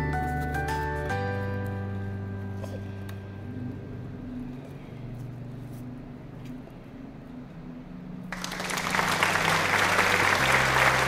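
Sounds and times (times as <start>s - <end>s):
soft music of low held notes: 0.0s - 8.3s
loud dense crackling noise: 8.3s - 11.0s.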